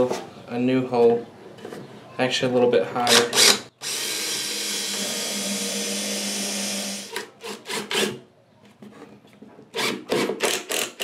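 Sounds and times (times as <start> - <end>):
cordless drill boring wood: 3.1 - 8.1, 9.8 - 11.0.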